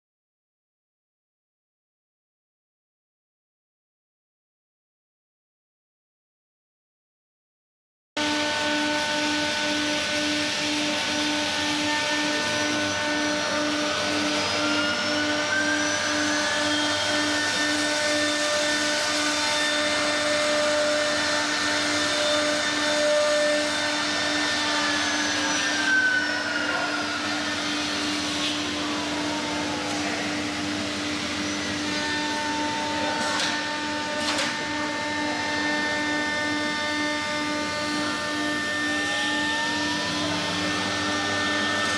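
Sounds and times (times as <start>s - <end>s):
router spindles whining: 8.2s - 41.9s
servo motors whining: 21.2s - 41.9s.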